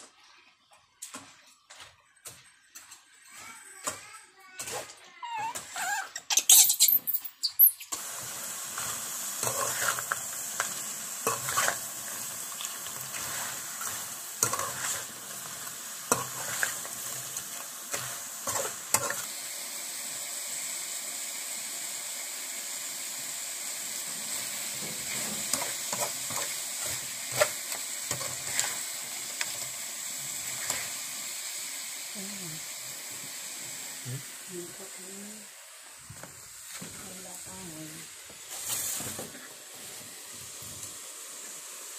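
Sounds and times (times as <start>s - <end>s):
crabs sizzling in a wok: 2.2s - 41.9s
spatula scraping and knocking pan: 8.8s - 15.4s, 16.1s - 19.3s, 24.8s - 28.8s.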